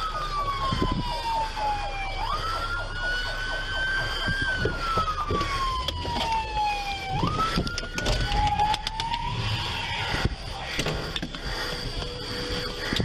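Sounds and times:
police siren wailing: 0:00.0 - 0:13.0
rumble of moving car: 0:00.0 - 0:13.0.

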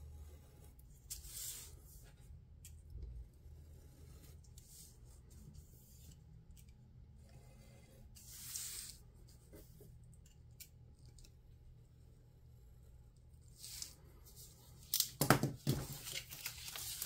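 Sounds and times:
paper sliding rustle: 0:15.7 - 0:17.0.

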